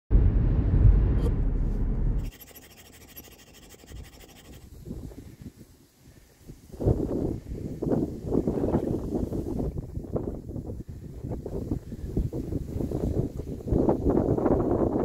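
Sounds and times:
car road and engine noise: 0.1s - 2.2s
light wind rustling: 3.4s - 15.0s.

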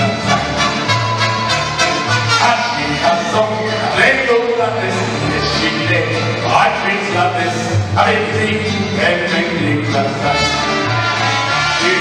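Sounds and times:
trumpets playing: 0.0s - 3.7s, 10.2s - 12.0s
bass line: 0.0s - 12.0s
mariachi band playing: 0.0s - 12.0s.

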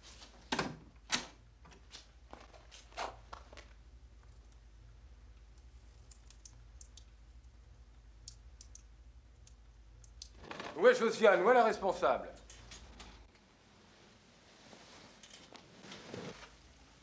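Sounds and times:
light ticks: 8.2s - 10.3s.

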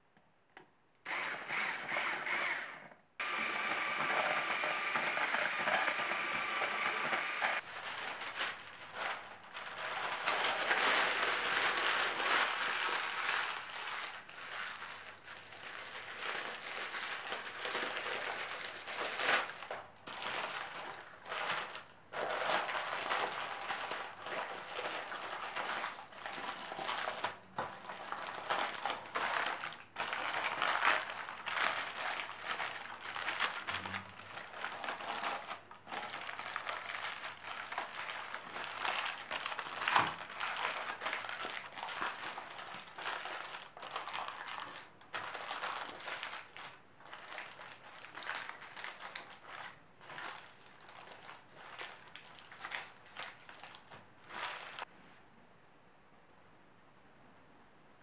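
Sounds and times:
baking paper crinkling: 4.6s - 54.9s.

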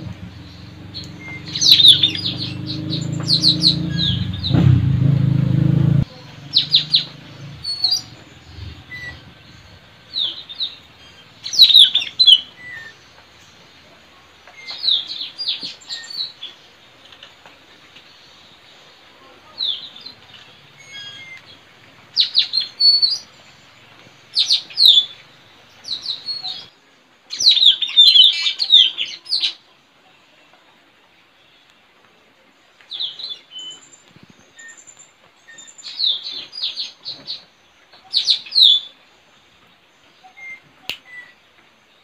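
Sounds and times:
parrots calling: 0.0s - 4.6s, 6.1s - 13.1s, 20.7s - 23.3s.

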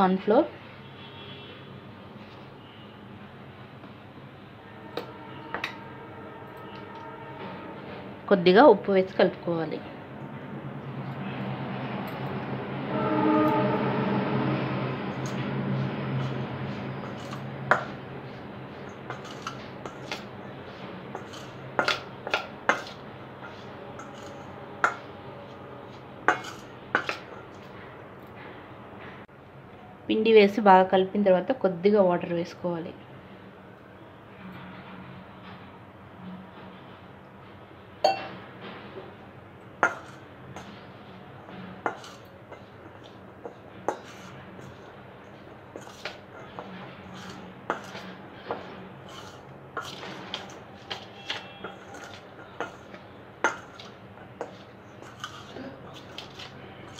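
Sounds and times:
spoon scraping in bowl: 16.2s - 18.0s, 18.8s - 20.3s, 21.1s - 25.0s, 25.9s - 27.6s, 39.8s - 40.8s, 41.8s - 44.9s, 45.7s - 56.9s
spoon clinking on metal bowl: 38.0s - 38.4s.

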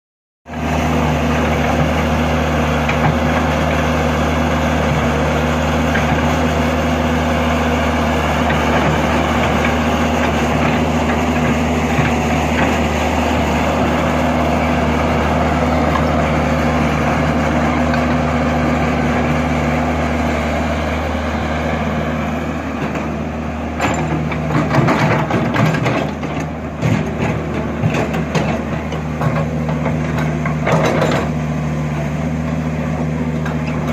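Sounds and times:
excavator diesel engine running: 0.5s - 33.9s
metal clanks and knocks: 23.8s - 31.4s.

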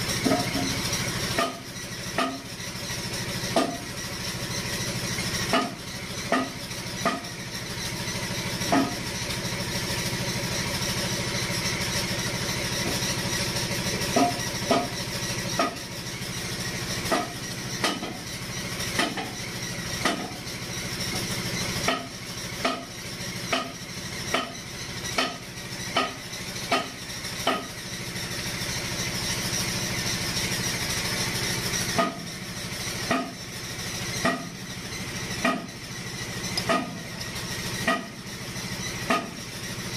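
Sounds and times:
engine-like hum and hiss: 0.0s - 39.9s
sharp metallic clicks and taps: 20.0s - 20.4s, 23.5s - 27.8s, 34.2s - 34.5s, 35.4s - 35.7s, 36.5s - 37.1s, 37.8s - 38.2s, 39.1s - 39.4s.

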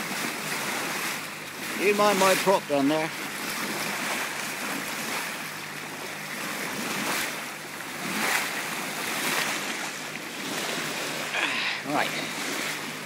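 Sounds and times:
boat engine humming: 0.0s - 13.0s
bow wave rushing and splashing: 0.0s - 13.0s.

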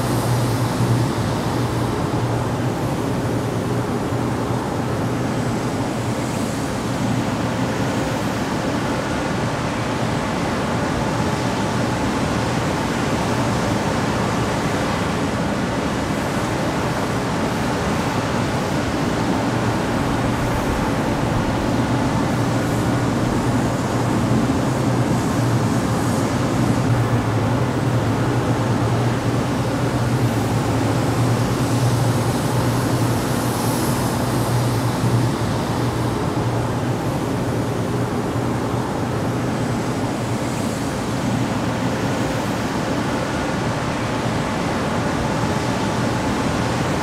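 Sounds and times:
exhaust fan air rush: 0.0s - 47.0s.

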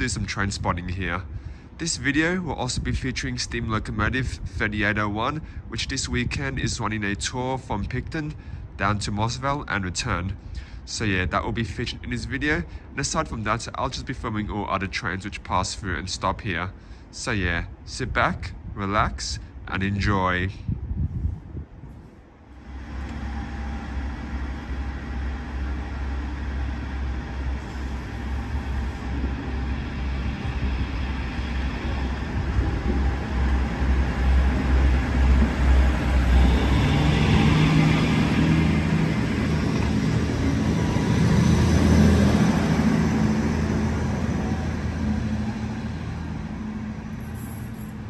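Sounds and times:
diesel engine rumble: 0.0s - 48.0s
diesel engine working harder: 22.4s - 48.0s.

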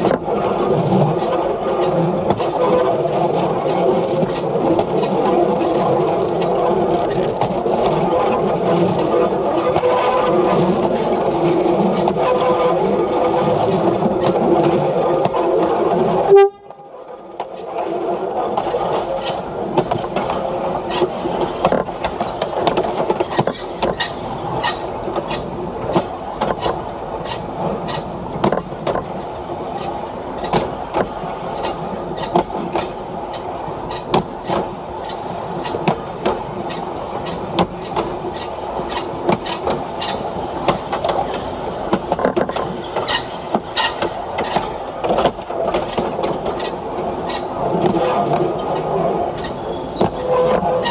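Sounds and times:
railcar running on track: 0.0s - 50.9s
wheels clicking over rail joints: 0.0s - 50.9s
train horn: 16.2s - 17.1s.

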